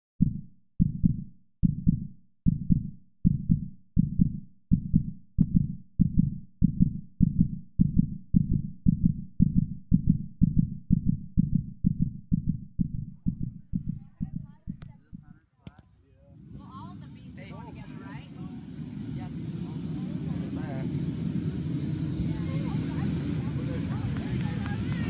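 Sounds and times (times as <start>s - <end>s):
heartbeat thumps: 0.2s - 15.7s.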